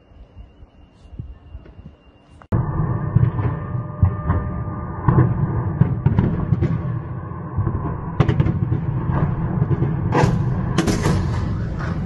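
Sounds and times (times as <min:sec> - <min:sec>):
low explosion rumble: 0:02.5 - 0:12.0
sharp explosion bangs: 0:02.6 - 0:12.0.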